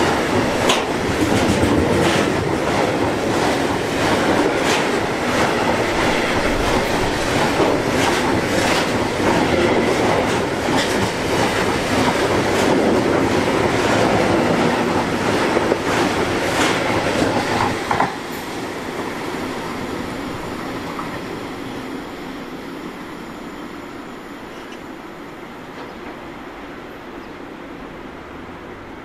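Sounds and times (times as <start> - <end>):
freight train wheels clattering on rails: 0.0 - 21.5.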